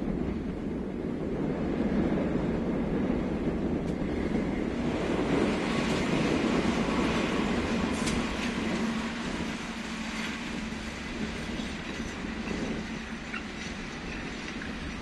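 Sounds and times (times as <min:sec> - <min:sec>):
diesel locomotive engines droning: 0:00.0 - 0:15.0
wheels clattering over rail joints: 0:04.8 - 0:15.0.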